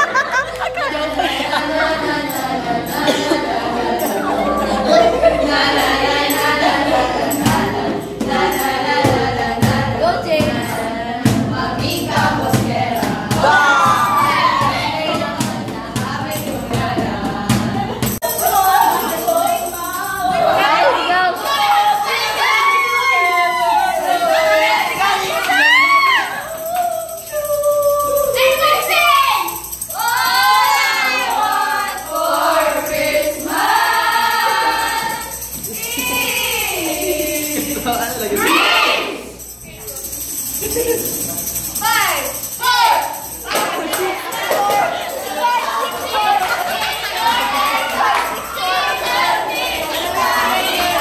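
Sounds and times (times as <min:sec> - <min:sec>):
young voices singing in chorus: 0:00.0 - 0:39.4, 0:43.0 - 0:51.0
tambourine: 0:02.2 - 0:51.0
hand-drum beats: 0:02.4 - 0:20.7.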